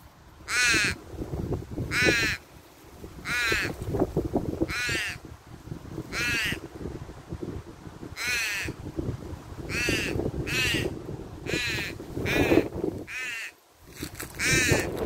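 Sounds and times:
crow cawing: 0.5 - 1.0, 1.9 - 2.4, 3.2 - 3.8, 4.7 - 5.2, 6.1 - 6.6, 8.2 - 8.8, 9.7 - 10.9, 11.5 - 13.6, 14.4 - 14.9.

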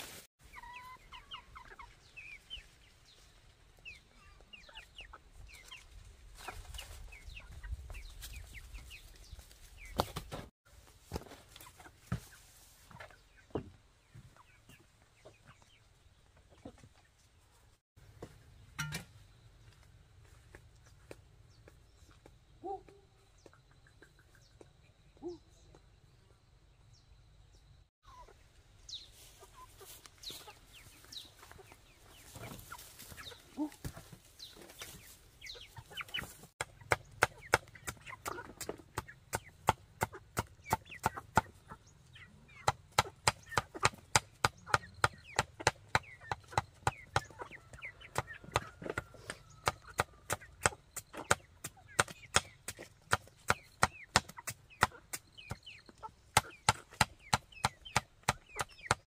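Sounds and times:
hens clucking: 0.4 - 10.2, 11.2 - 17.6, 28.0 - 59.0.

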